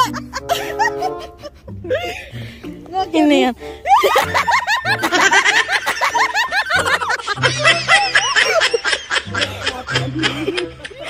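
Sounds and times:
background music with bass line: 0:00.0 - 0:08.2
rapid high-pitched laughter: 0:03.8 - 0:11.0.

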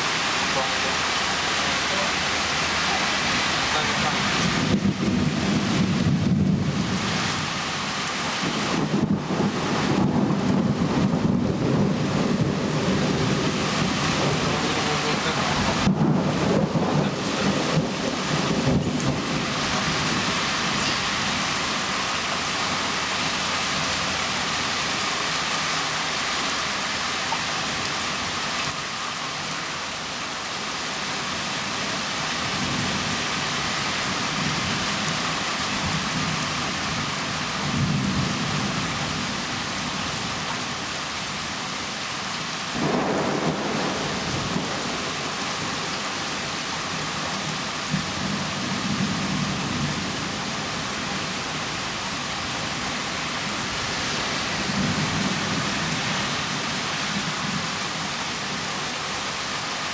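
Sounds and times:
heavy rain: 0:00.0 - 0:59.9
thunder rumbling: 0:02.3 - 0:07.5, 0:08.4 - 0:22.0, 0:42.7 - 0:46.5.

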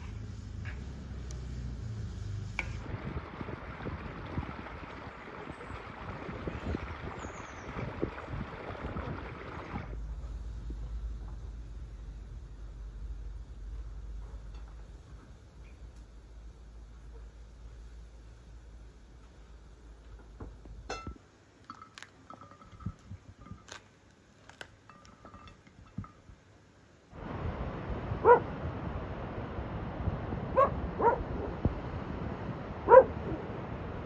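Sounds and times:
steady hiss: 0:00.0 - 0:02.9, 0:09.9 - 0:28.0
dog barking: 0:28.2 - 0:28.5, 0:30.6 - 0:31.5, 0:32.9 - 0:33.2.

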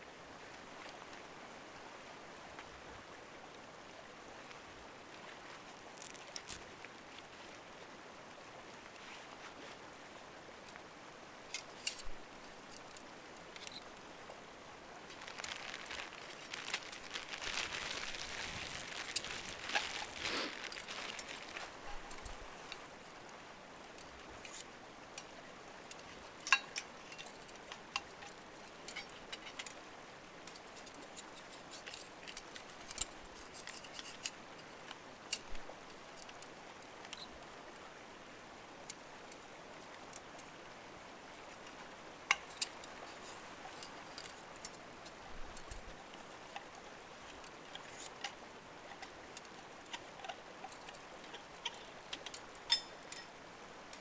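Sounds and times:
faint steady hiss: 0:00.0 - 0:54.0
hands handling small objects: 0:15.1 - 0:23.0.

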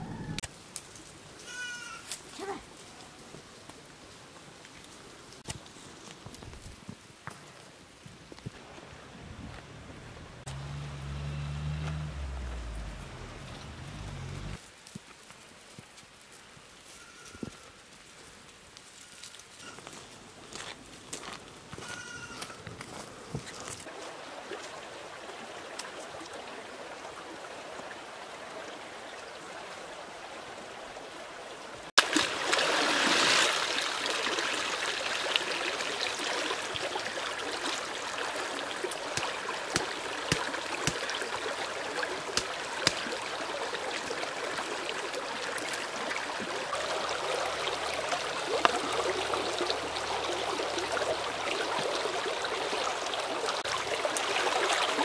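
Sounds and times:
stream running over stones: 0:02.5 - 0:16.8, 0:22.9 - 0:55.0
basket rinsed in splashing water: 0:32.0 - 0:35.4.

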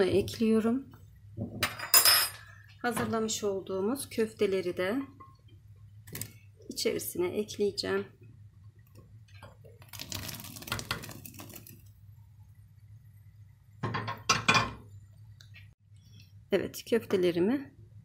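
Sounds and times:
food splashing into boiling water: 0:06.0 - 0:06.5, 0:08.7 - 0:12.8.

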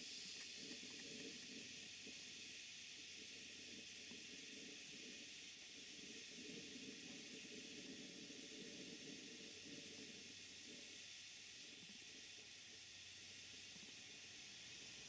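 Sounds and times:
faint hiss of steam: 0:00.0 - 0:15.0.

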